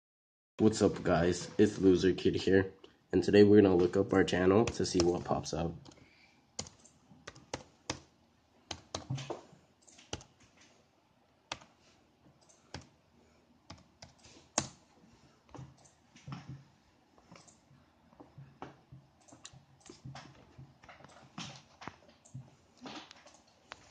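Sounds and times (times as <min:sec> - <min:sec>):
typing on a keyboard: 0:06.6 - 0:08.1, 0:08.7 - 0:10.6, 0:11.5 - 0:11.7, 0:13.7 - 0:14.8, 0:19.2 - 0:22.4.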